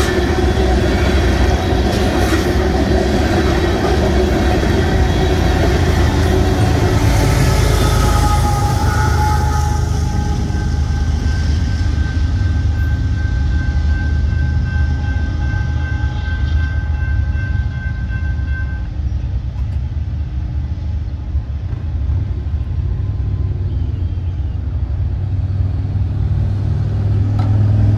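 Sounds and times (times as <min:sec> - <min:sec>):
freight train rumbling: 0:00.0 - 0:27.9
steady high tones: 0:02.1 - 0:18.9.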